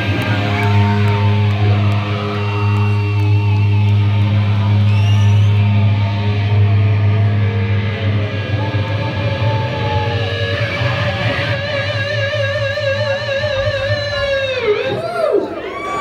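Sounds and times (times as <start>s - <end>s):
low bass drone: 0.0s - 14.6s
electric guitar sustained note: 0.0s - 14.8s.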